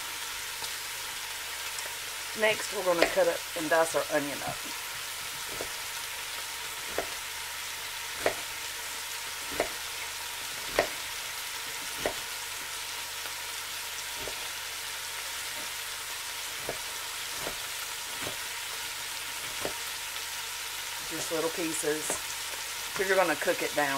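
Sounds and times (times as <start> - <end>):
bacon sizzling: 0.0 - 23.9
knife tapping cutting board: 5.4 - 5.8, 6.8 - 7.2, 8.1 - 8.5, 9.4 - 9.9, 10.6 - 11.2, 11.8 - 12.3, 14.2 - 14.5, 16.6 - 18.5, 19.4 - 19.8.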